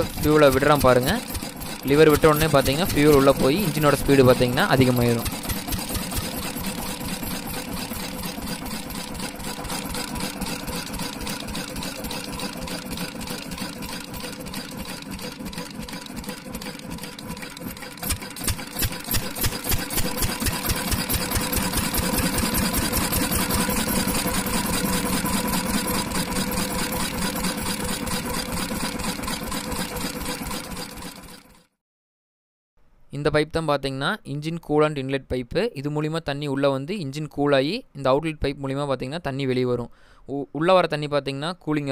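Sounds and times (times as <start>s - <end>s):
diesel engine running: 0.0s - 31.2s
engine firing with loud knocks: 0.0s - 31.5s.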